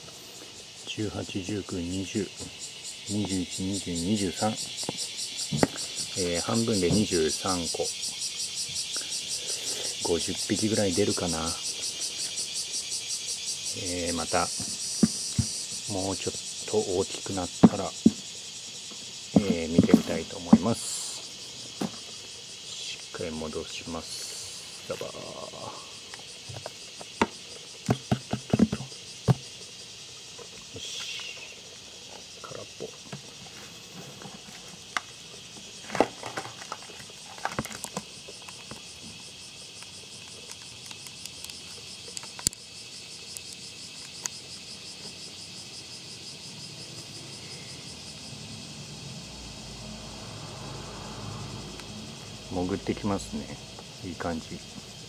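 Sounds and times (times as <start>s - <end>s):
steady high hiss: 0.0s - 55.0s
larvae and substrate pattering onto soil: 0.1s - 7.9s, 8.8s - 24.2s, 24.8s - 45.2s.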